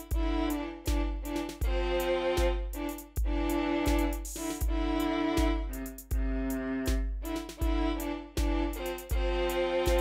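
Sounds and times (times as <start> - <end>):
sustained chords with deep pulse: 4.6 - 10.0.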